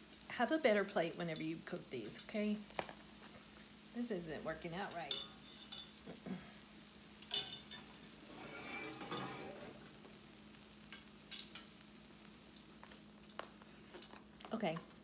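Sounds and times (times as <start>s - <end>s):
oil sizzling: 0.0s - 15.0s
metal tongs clinking on pot: 4.9s - 6.0s, 7.2s - 9.8s, 10.9s - 11.8s.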